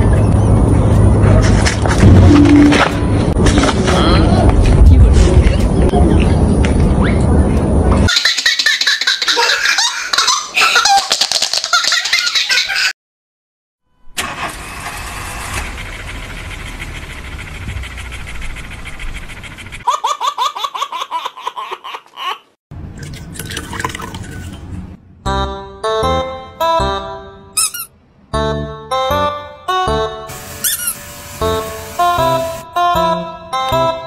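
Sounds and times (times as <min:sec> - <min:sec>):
rushing noise with low rumble: 0:00.0 - 0:08.1
baby laughing: 0:08.1 - 0:12.9, 0:19.8 - 0:22.6.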